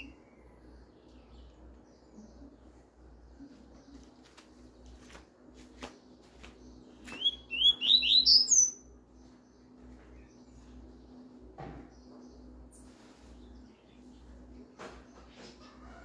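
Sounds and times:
bird singing a rising phrase: 0:06.6 - 0:10.4.

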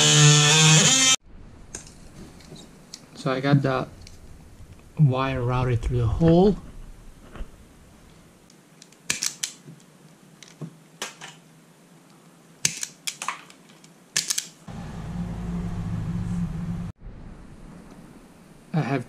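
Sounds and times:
steady low hum: 0:14.7 - 0:18.7.

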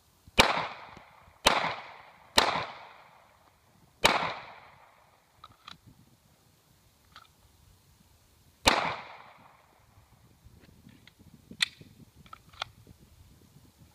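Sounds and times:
echoing pistol shot: 0:00.4 - 0:03.3, 0:04.0 - 0:05.2, 0:08.6 - 0:09.7
gun handling clicks: 0:05.4 - 0:05.8, 0:07.1 - 0:07.4, 0:11.0 - 0:12.8.

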